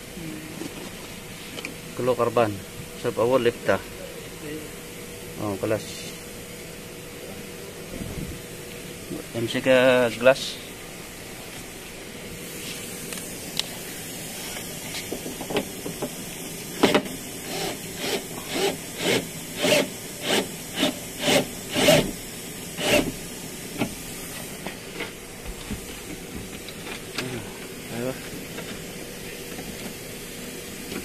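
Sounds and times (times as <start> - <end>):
cordless drill bursts: 17.4 - 23.3.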